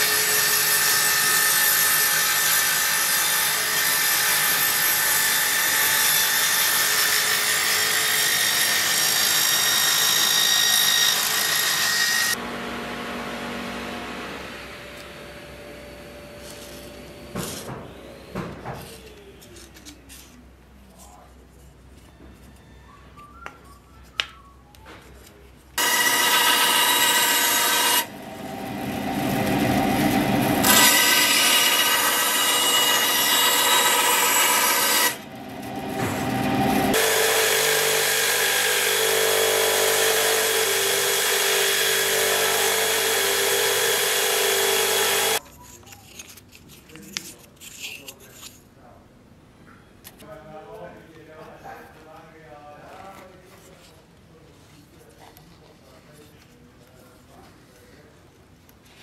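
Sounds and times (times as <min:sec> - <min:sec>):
band saw cutting wood: 0:00.0 - 0:19.3, 0:25.8 - 0:45.4
belt grinder running: 0:25.8 - 0:45.4.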